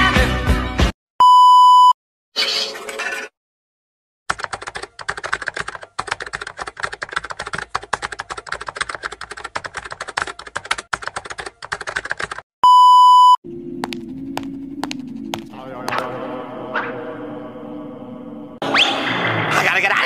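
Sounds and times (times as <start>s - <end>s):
steady test-tone beep: 1.2s - 2.0s, 12.6s - 13.4s
rapid typing on a keyboard: 4.3s - 12.4s.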